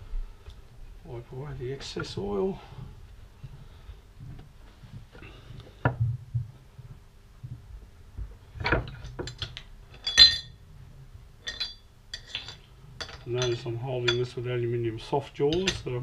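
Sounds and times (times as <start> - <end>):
metal clinks and knocks: 8.6 - 10.6, 11.4 - 14.4, 15.5 - 16.0
ringing metal clink: 9.3 - 10.6, 11.4 - 14.4.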